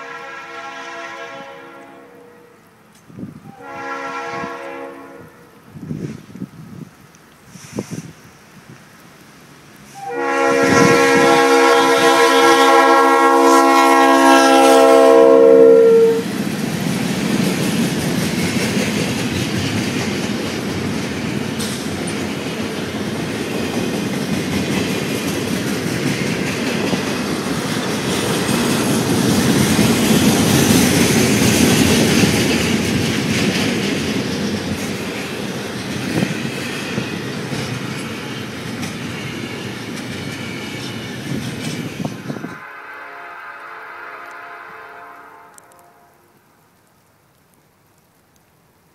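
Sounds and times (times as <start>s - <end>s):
locomotive air horn chord: 0.0s - 2.6s, 3.6s - 5.5s, 10.0s - 16.3s, 42.6s - 46.3s
train wheels on rails: 5.8s - 45.8s.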